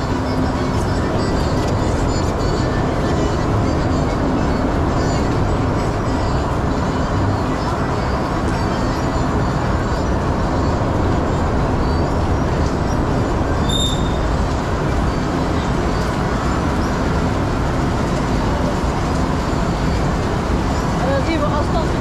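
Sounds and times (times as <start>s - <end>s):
short high tone: 13.6s - 14.2s.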